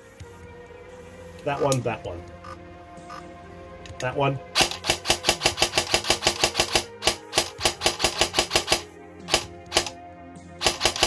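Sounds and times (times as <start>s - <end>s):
airsoft gun gearbox firing: 4.6s - 9.9s, 10.6s - 11.0s.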